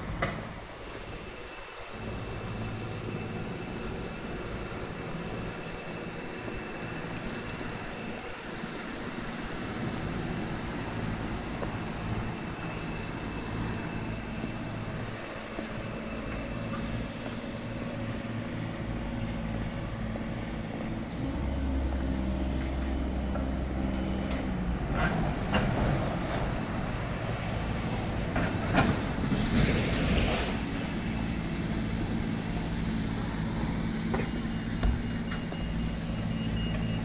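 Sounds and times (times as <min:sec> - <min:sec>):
high-pitched whine: 0:00.0 - 0:37.0
machinery and traffic drone: 0:00.0 - 0:37.0
deep rumble: 0:09.9 - 0:36.2.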